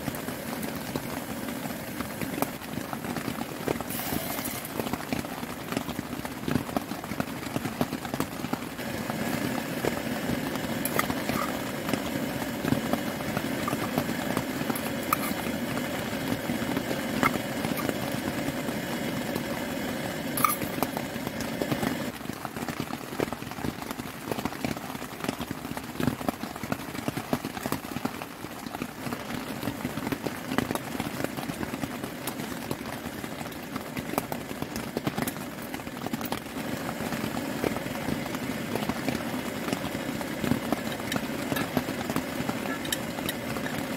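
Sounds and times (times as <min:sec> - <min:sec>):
gas stove hissing: 0:03.8 - 0:05.2.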